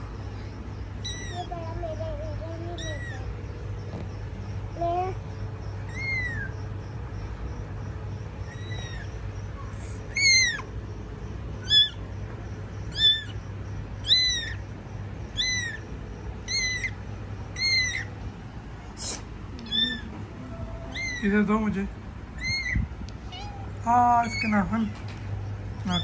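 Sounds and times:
kitten mewing: 0:01.0 - 0:03.6, 0:05.8 - 0:06.6, 0:08.4 - 0:10.7, 0:11.6 - 0:12.0, 0:12.9 - 0:13.4, 0:14.0 - 0:14.7, 0:15.3 - 0:17.0, 0:17.6 - 0:18.2, 0:18.9 - 0:21.4, 0:22.3 - 0:24.7.

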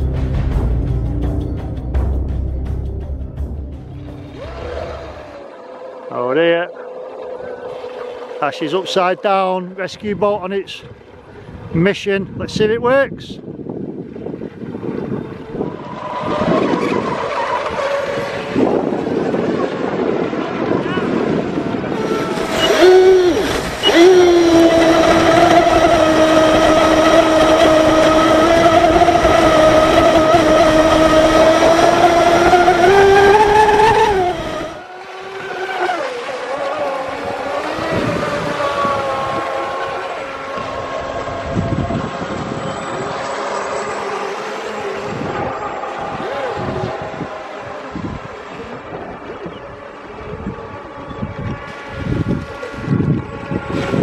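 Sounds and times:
model boat motor whine: 0:04.2 - 0:10.2, 0:13.5 - 0:54.0
water spray rushing: 0:21.9 - 0:41.6.

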